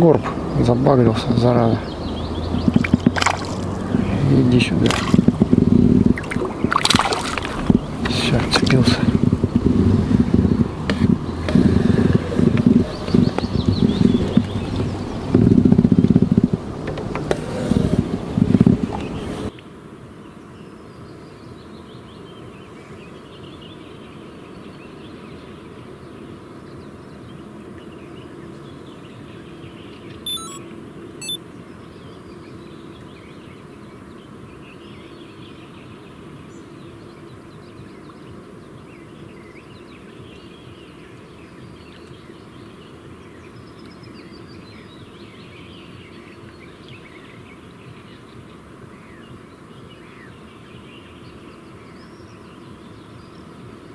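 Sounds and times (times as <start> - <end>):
distant bird calls: 0.0 - 9.7, 10.3 - 16.1, 28.5 - 30.6, 31.2 - 53.9.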